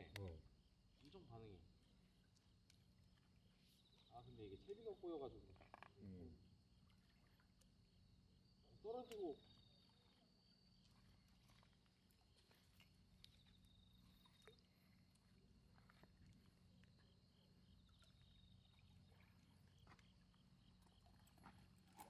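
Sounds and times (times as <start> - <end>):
soft ticks: 0.1 - 0.4, 2.2 - 2.9.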